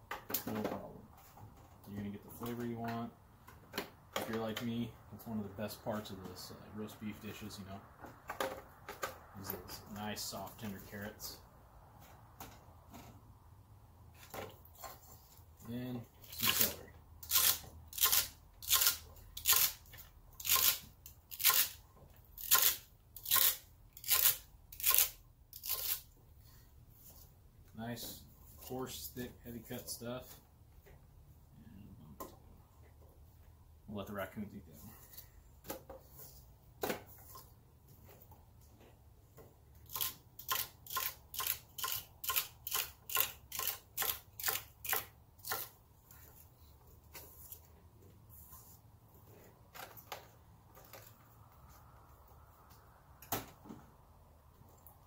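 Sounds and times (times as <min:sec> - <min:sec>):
knife chopping celery on wooden board: 0:39.9 - 0:45.7.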